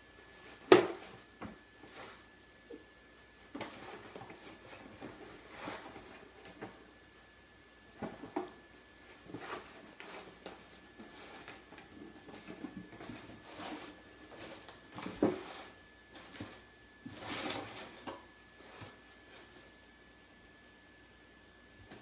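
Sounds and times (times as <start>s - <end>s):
cardboard box scraping on tile: 3.6s - 6.8s, 9.1s - 19.6s.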